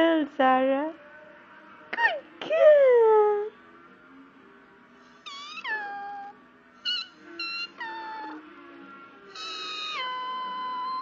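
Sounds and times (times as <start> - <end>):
puppy whining: 5.2 - 8.5, 9.3 - 11.0.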